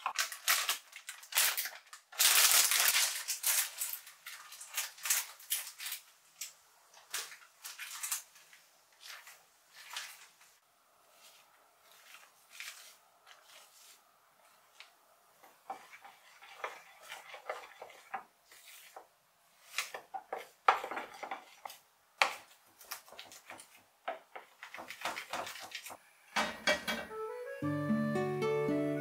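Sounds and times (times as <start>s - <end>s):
kitchen utensils and dishes clinking: 23.0s - 27.2s.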